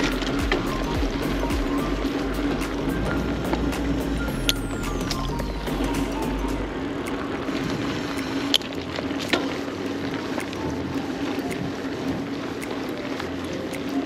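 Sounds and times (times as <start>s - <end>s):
bike clicks: 0.0s - 4.5s, 5.1s - 14.0s.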